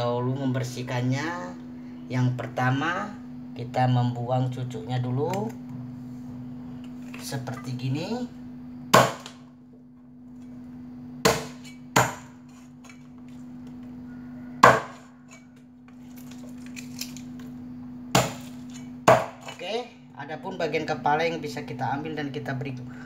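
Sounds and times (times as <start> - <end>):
steady low hum: 0.0 - 23.0
cleaver chopping on a block: 8.9 - 9.4, 11.2 - 12.4, 14.6 - 15.1, 18.1 - 19.6.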